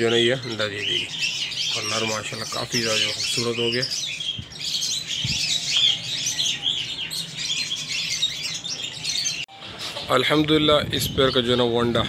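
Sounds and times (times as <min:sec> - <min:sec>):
parrots chirping and chattering: 0:00.0 - 0:12.0.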